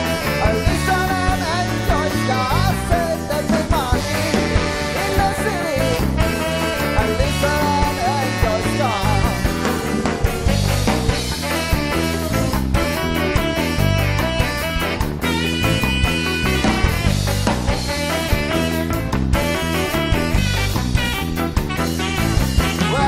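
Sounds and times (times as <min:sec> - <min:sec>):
man singing lead vocal: 0:00.0 - 0:10.1, 0:22.6 - 0:23.0
ska band playing live: 0:00.0 - 0:23.0.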